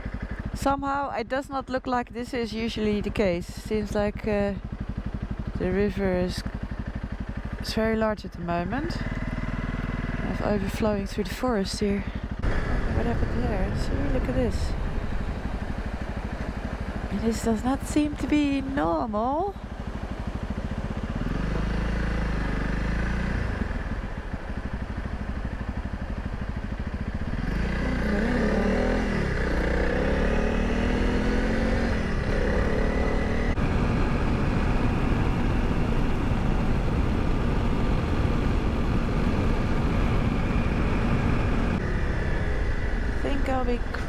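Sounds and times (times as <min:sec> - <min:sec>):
motorcycle engine accelerating: 0:00.0 - 0:01.0, 0:01.7 - 0:44.0
wind noise: 0:12.4 - 0:16.0.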